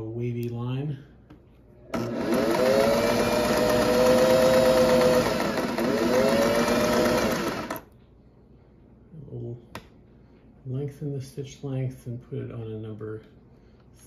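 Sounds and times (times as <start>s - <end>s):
sewing machine stitching: 1.9s - 7.9s.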